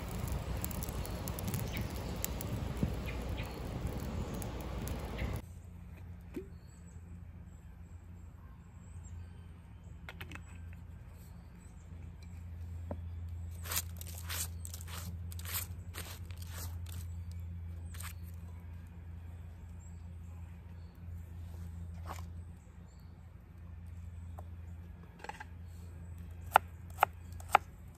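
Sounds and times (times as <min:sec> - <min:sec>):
steady low hum: 0:00.0 - 0:10.0
hands rustling dry leaves: 0:13.5 - 0:17.2.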